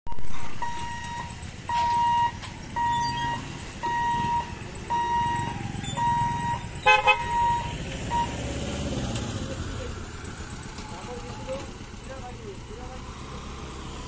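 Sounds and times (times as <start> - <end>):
crossing barrier warning beeps: 0.1 - 12.0
motorbike engines running: 0.3 - 14.0
vehicle horn toots: 6.8 - 7.8.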